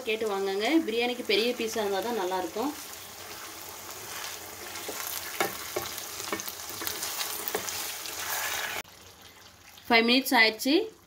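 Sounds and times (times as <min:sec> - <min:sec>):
chicken sizzling in hot oil: 0:00.0 - 0:11.0
wooden spatula knocking on pan: 0:04.8 - 0:07.7.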